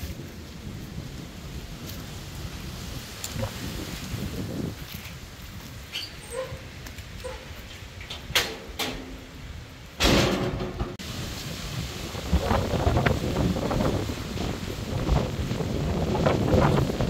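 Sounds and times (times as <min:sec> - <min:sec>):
wind gusting over microphone: 0:00.0 - 0:17.0
knocks and creaks: 0:05.9 - 0:11.0.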